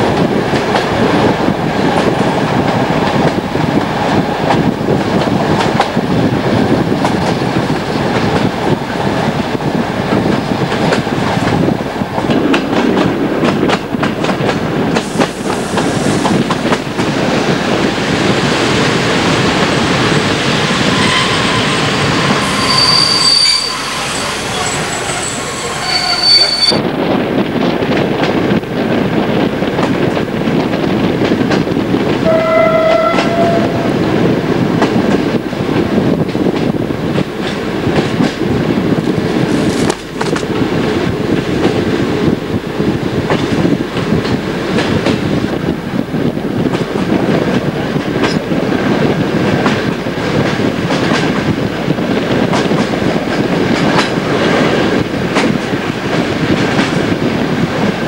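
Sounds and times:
train wheels rumbling and rattling: 0:00.0 - 0:58.0
wheels squealing: 0:20.2 - 0:26.9
train horn: 0:20.5 - 0:26.8, 0:32.2 - 0:34.1.

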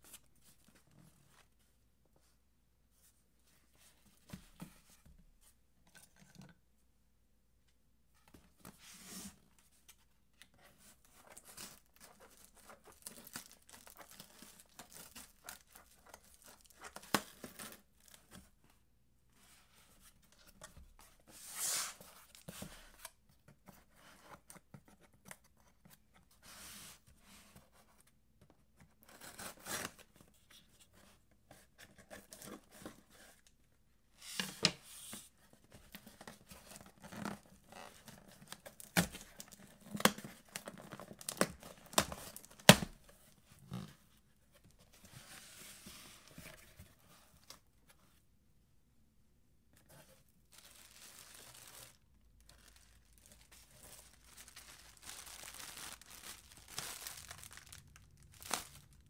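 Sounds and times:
tape ripping: 0:54.5 - 0:59.0.

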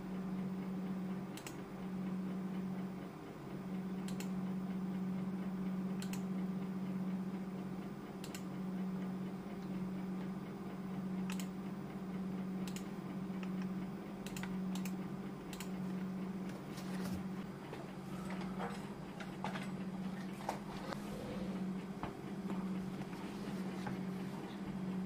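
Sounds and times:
low hum: 0:00.0 - 0:25.0
computer mouse clicking: 0:01.4 - 0:01.6, 0:04.1 - 0:04.3, 0:06.0 - 0:06.2, 0:08.2 - 0:08.5, 0:11.3 - 0:11.5, 0:12.6 - 0:15.8.

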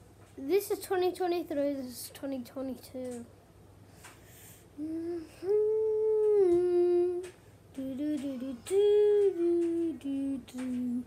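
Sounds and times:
child humming a tune: 0:04.8 - 0:11.0.

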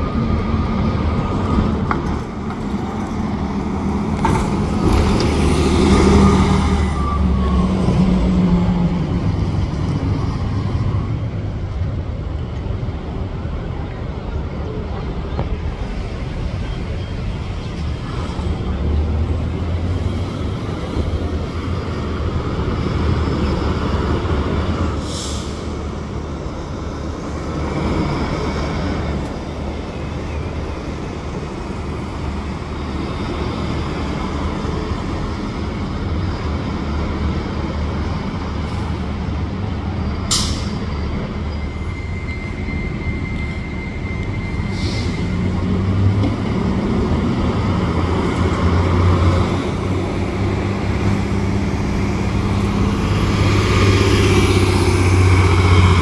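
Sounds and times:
diesel buses running: 0:00.0 - 0:56.0
air brake hisses: 0:25.0 - 0:25.8, 0:40.3 - 0:40.9, 0:44.6 - 0:45.3.

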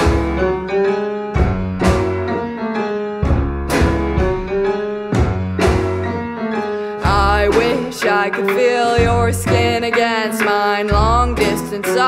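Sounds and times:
piano playing chords: 0:00.0 - 0:12.0
low bass notes: 0:01.3 - 0:02.5, 0:03.2 - 0:06.3, 0:07.0 - 0:07.9, 0:09.0 - 0:09.8.

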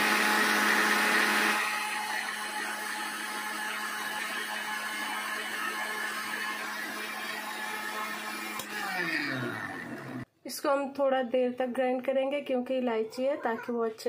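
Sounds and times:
mixer grinder humming: 0:00.0 - 0:10.3.

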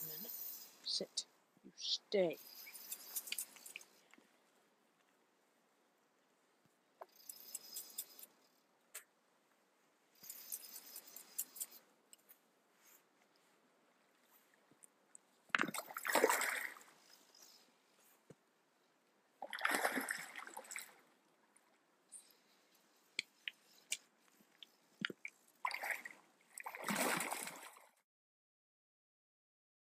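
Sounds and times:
fish thrashing water splashes: 0:15.6 - 0:16.9, 0:19.4 - 0:21.0, 0:25.6 - 0:27.8.

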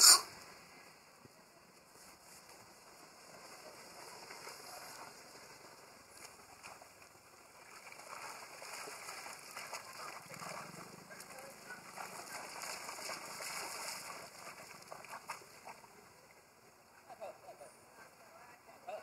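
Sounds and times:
monkeys splashing in pond: 0:02.5 - 0:16.6.

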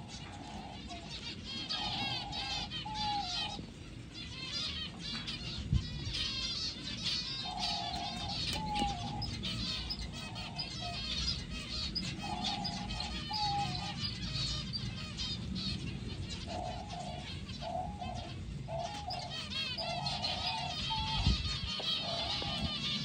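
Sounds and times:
doves cooing: 0:00.0 - 0:04.1, 0:06.0 - 0:23.0
low background rumble: 0:00.0 - 0:23.0
finches chirping: 0:04.3 - 0:23.0.

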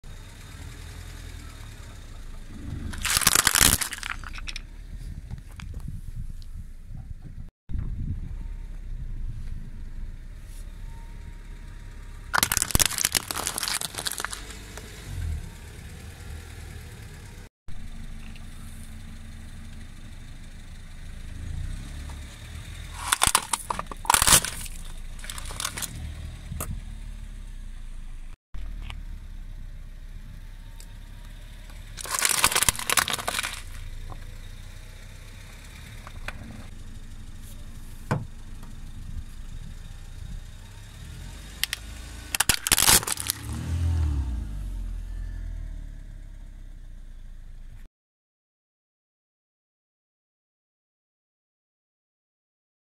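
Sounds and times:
car engine running: 0:00.0 - 0:47.9
plastic toys cracking and crunching: 0:02.9 - 0:04.6, 0:12.4 - 0:14.6, 0:22.9 - 0:26.0, 0:32.0 - 0:33.8, 0:41.6 - 0:43.6.

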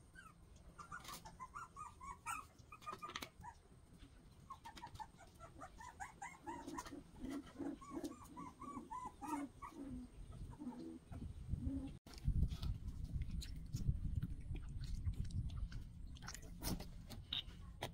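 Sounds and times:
puppies whimpering and squeaking: 0:00.0 - 0:03.7, 0:04.3 - 0:12.0
puppies whining: 0:00.0 - 0:03.7, 0:04.4 - 0:12.0.

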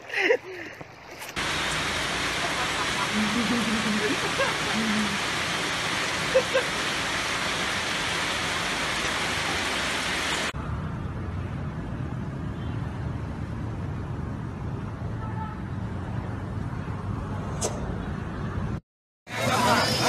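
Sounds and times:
rain hissing on flooded ground: 0:01.4 - 0:10.6
low rushing noise: 0:01.4 - 0:12.0.

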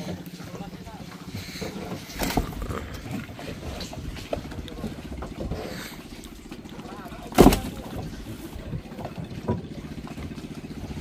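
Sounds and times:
boat engine throbbing: 0:00.0 - 0:11.0
fish thudding onto deck: 0:01.6 - 0:02.9, 0:06.7 - 0:09.7.

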